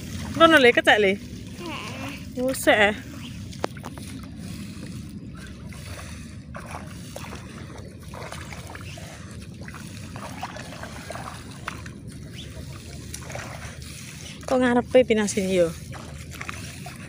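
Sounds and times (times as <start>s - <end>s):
feet splashing through water and mud: 0.0s - 17.0s
wind rumble on microphone: 0.0s - 17.0s.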